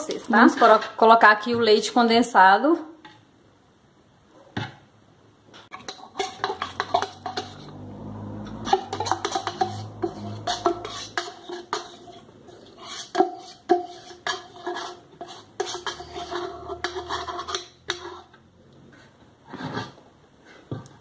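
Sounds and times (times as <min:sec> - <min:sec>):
spoon scraping and clinking in tin: 0:05.7 - 0:07.8, 0:08.6 - 0:18.3.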